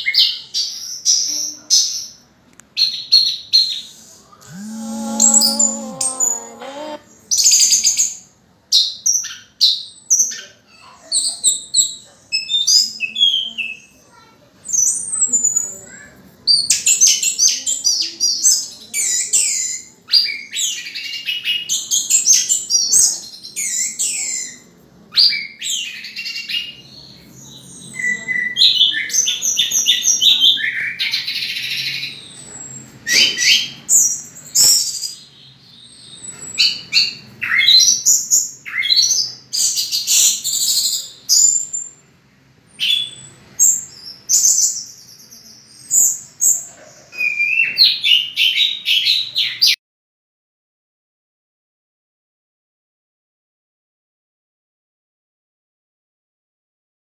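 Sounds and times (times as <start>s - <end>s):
thrush singing: 4.4s - 7.1s.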